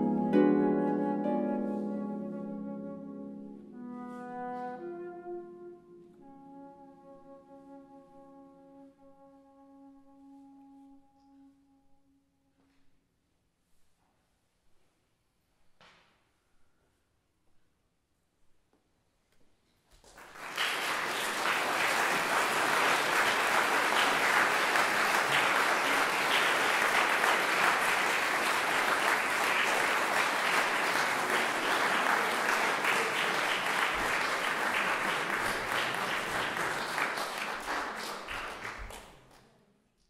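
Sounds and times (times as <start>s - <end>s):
audience applauding: 20.0s - 39.5s.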